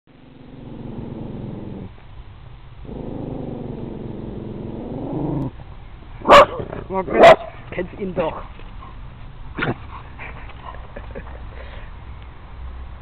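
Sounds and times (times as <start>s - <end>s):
animal growling: 0.1s - 2.0s, 2.8s - 5.5s.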